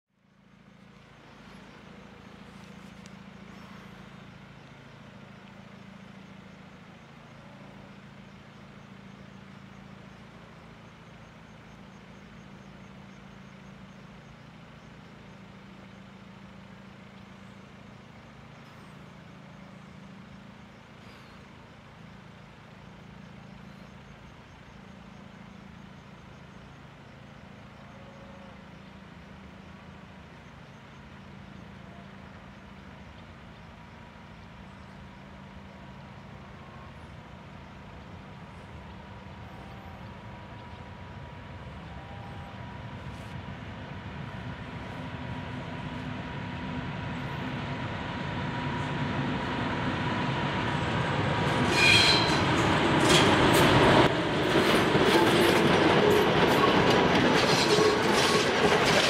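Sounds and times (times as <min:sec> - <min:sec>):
diesel locomotive engine drone: 0:00.1 - 0:59.0.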